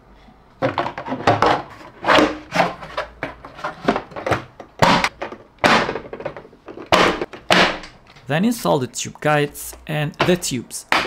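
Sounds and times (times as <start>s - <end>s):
plastic parts scraping and knocking: 0.6s - 8.3s, 10.1s - 11.0s.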